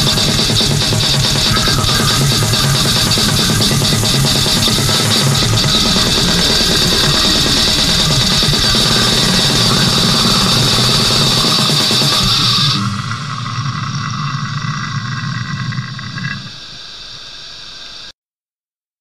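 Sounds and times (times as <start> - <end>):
extreme metal music: 0.0 - 15.1.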